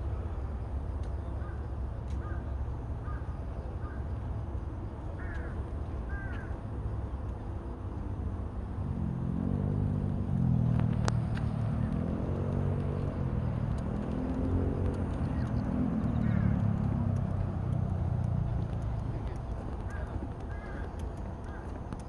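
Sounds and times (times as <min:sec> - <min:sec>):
crow cawing: 0:02.2 - 0:02.4, 0:03.0 - 0:03.2, 0:05.2 - 0:06.5, 0:16.2 - 0:16.6, 0:19.9 - 0:21.7
passing vehicle engine droning: 0:05.2 - 0:22.0.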